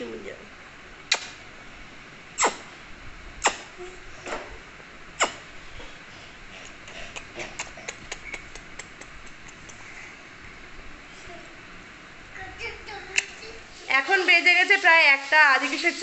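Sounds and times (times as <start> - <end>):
smacking kisses: 1.1 - 1.4, 2.4 - 2.6, 3.4 - 3.7, 5.2 - 5.4, 6.6 - 9.8.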